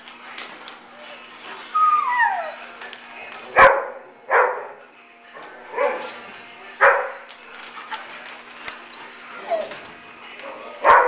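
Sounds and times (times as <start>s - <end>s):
dogs barking: 1.6s - 8.0s, 10.8s - 11.0s.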